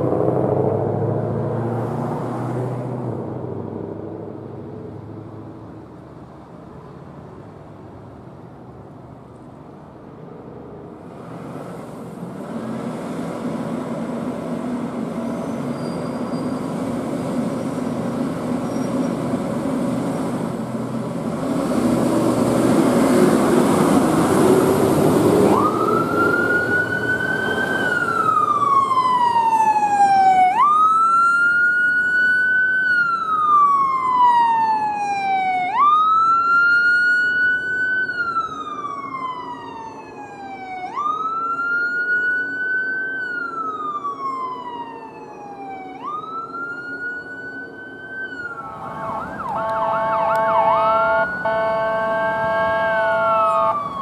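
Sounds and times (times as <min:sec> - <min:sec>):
vehicle engine and road noise: 0:00.0 - 0:54.0
emergency vehicle siren: 0:14.3 - 0:54.0.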